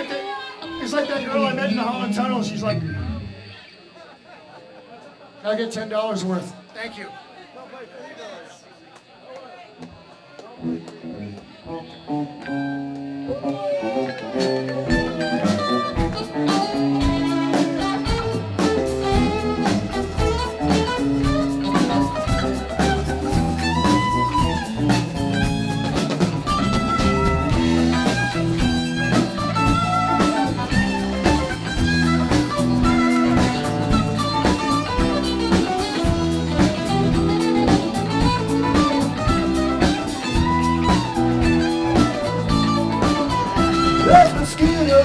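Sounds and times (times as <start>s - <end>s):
electric guitars: 0.0s - 6.8s, 9.8s - 45.0s
keyboard: 10.0s - 45.0s
drum kit steady beat: 14.3s - 45.0s.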